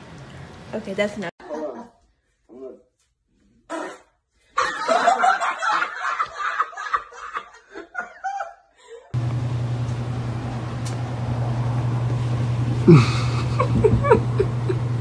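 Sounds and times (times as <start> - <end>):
man laughing hard: 12.9 - 14.9.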